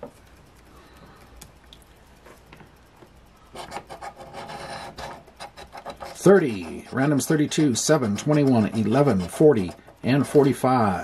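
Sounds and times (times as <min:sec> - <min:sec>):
faint ticks: 0:00.1 - 0:03.5
coin scratching lottery ticket: 0:03.6 - 0:11.0.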